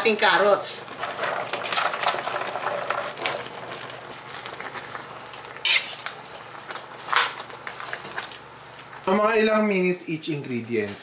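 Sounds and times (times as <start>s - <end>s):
food sizzling hiss: 4.0s - 7.7s
metal spatula scraping a wok: 5.6s - 6.0s.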